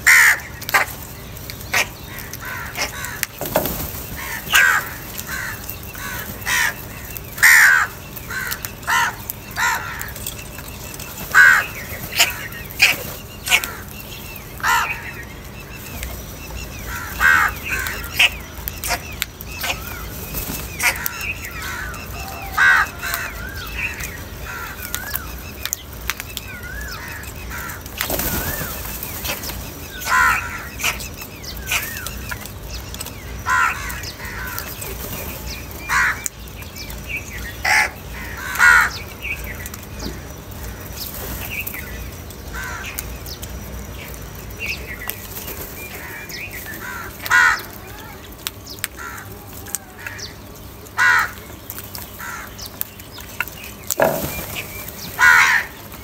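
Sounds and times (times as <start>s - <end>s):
crows cawing: 0.0s - 0.9s, 1.7s - 10.5s, 11.3s - 15.3s, 16.7s - 25.4s, 26.5s - 32.1s, 33.4s - 34.8s, 35.8s - 36.3s, 37.6s - 39.3s, 42.5s - 43.0s, 45.8s - 48.3s, 48.9s - 51.5s, 52.1s - 52.7s, 54.0s - 56.0s
thin wavering bird calls: 0.0s - 56.0s
wings flapping: 0.1s - 14.9s, 16.9s - 25.2s, 26.1s - 31.0s, 51.3s - 56.0s.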